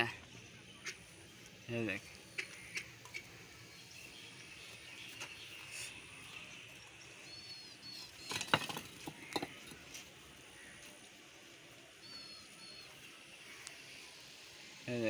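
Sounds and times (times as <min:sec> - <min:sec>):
bird chirping: 0:00.0 - 0:10.9, 0:11.7 - 0:14.6
bricks knocking: 0:08.2 - 0:09.8.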